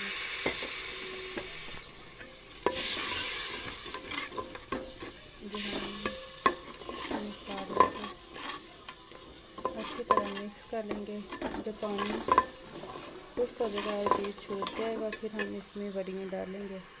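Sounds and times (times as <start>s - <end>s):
masala sizzling in hot oil: 0.0s - 17.0s
steel spoon clinking on pot: 3.6s - 12.8s, 13.4s - 15.6s.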